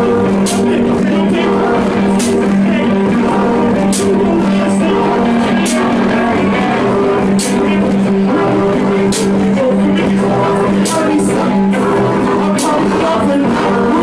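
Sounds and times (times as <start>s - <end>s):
loud live band music: 0.0s - 14.0s.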